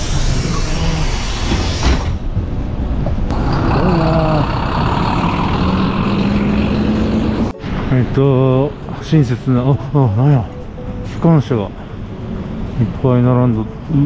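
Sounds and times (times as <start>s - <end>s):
air hiss: 0.0s - 2.2s
bus engine rumbling: 0.0s - 14.0s.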